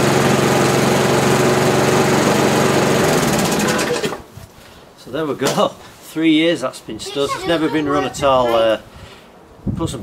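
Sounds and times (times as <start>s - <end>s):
lawnmower engine running: 0.0s - 4.3s.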